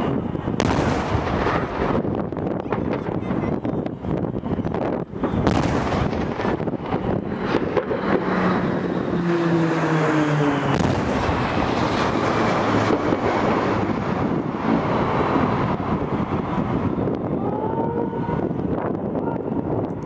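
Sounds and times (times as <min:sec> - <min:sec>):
aircraft engines rushing overhead: 0:00.0 - 0:20.0.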